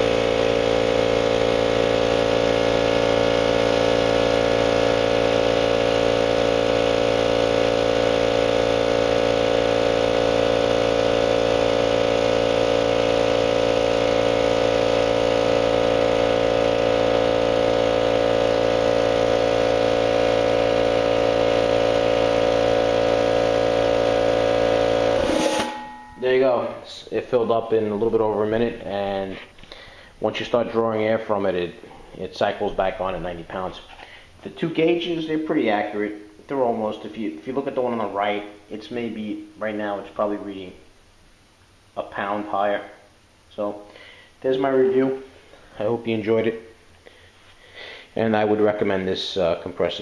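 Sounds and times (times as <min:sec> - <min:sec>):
air compressor running: 0:00.0 - 0:26.8, 0:28.8 - 0:30.2, 0:32.8 - 0:36.4, 0:43.9 - 0:44.4, 0:46.9 - 0:48.8.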